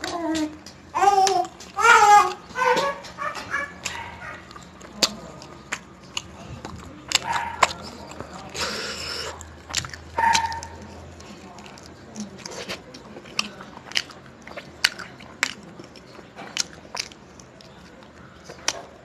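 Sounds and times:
person chewing food: 0.0 - 19.0
small child squealing and babbling: 0.1 - 3.8.

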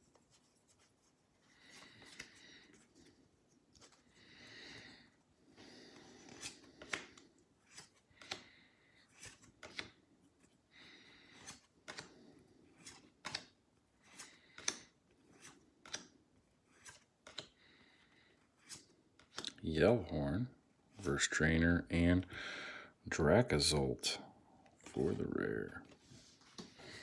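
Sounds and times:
trading cards snapping and sliding: 1.8 - 2.4, 6.2 - 8.5, 9.1 - 10.0, 11.3 - 17.6, 18.6 - 19.6.

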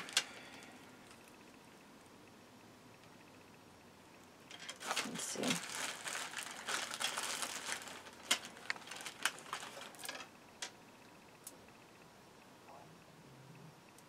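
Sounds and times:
plastic bag crinkling: 0.0 - 1.2, 4.5 - 10.3.

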